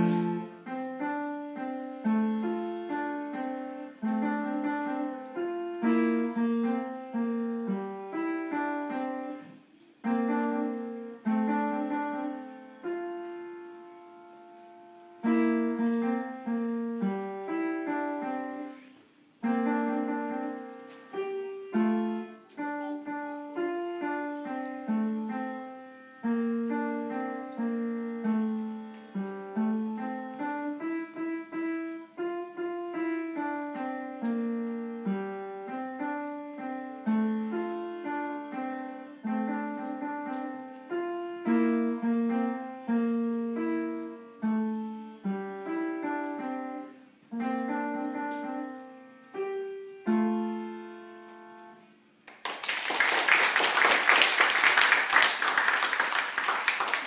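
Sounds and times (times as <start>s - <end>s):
upright piano single notes: 0.0s - 52.2s
applause: 52.2s - 57.0s.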